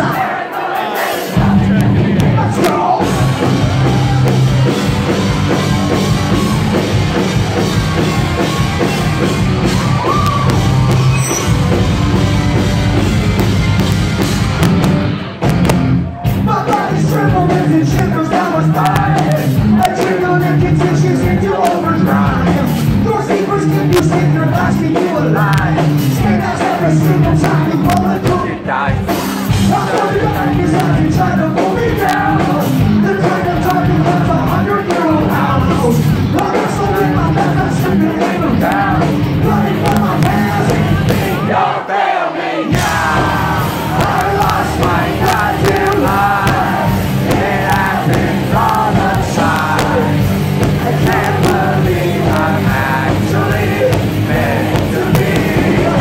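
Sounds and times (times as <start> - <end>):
male singer singing: 0.0 - 3.3, 16.4 - 41.7, 42.6 - 56.0
live rock band through loud pa: 0.0 - 56.0.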